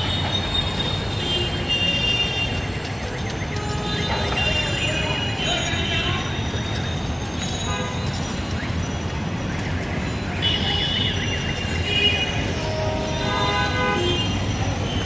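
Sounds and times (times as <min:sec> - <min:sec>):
city traffic rumble: 0:00.0 - 0:15.0
high horn toots: 0:12.0 - 0:14.4.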